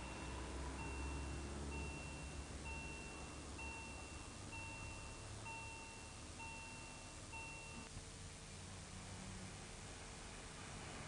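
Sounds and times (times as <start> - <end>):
level crossing warning beeps: 0.0 - 7.9.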